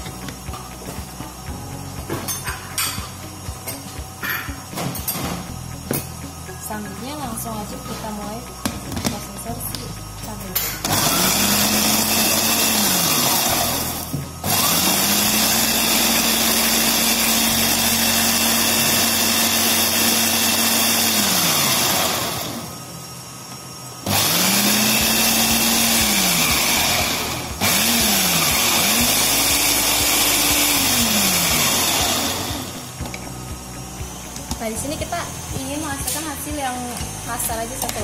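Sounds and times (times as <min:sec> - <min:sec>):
food processor motor running: 0:10.8 - 0:38.0.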